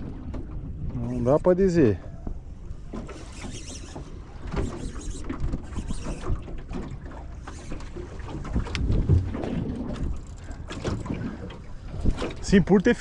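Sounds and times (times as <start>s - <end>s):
water slapping a metal hull: 2.9s - 13.0s
wind buffeting microphone: 7.8s - 13.0s.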